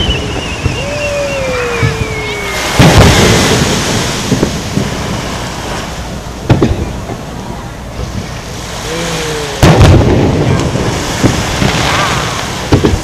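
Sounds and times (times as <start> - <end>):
whistling firework shell: 0.0 - 3.4
firework boom: 0.0 - 7.2, 8.1 - 13.0.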